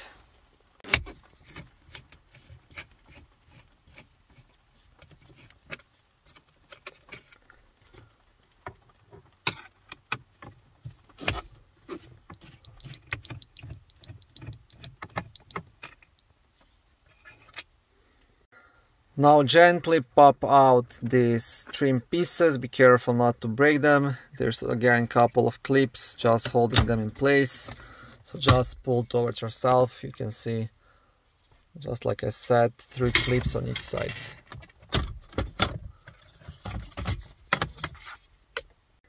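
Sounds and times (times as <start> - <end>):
hands working plastic trim: 11.1 - 16.2.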